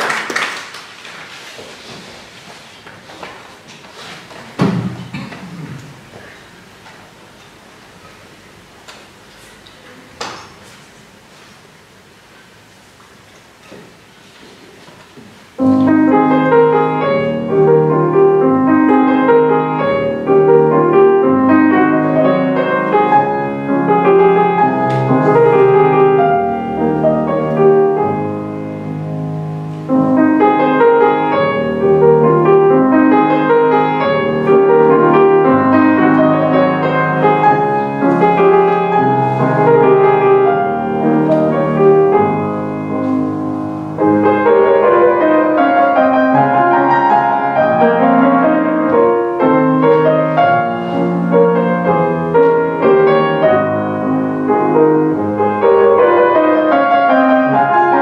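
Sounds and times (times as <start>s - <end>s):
grand piano playing: 15.6s - 58.0s.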